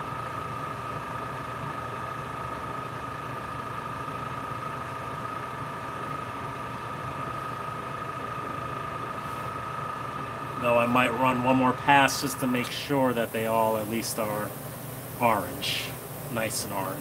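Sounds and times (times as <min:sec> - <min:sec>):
high whine: 0:02.1 - 0:17.0
airbrush motor humming: 0:04.0 - 0:17.0.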